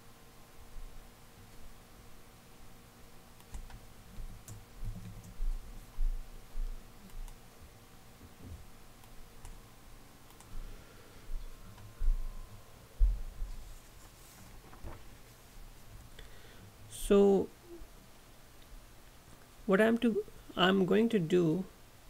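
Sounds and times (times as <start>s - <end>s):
keyboard typing clicks: 3.4s - 3.8s, 10.3s - 10.5s.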